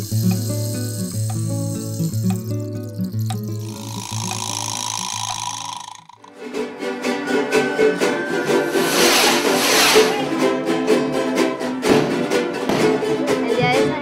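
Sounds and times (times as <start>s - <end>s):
rush of hissing noise: 0.0s - 2.6s, 3.6s - 6.0s
strummed string instruments: 6.3s - 14.0s.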